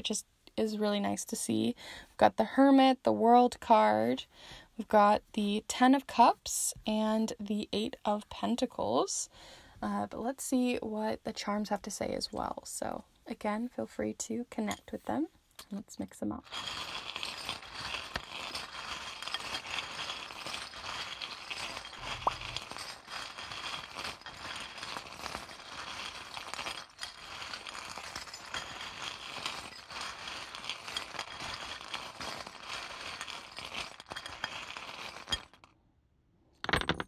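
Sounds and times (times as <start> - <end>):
small charms clinking: 16.4 - 35.7.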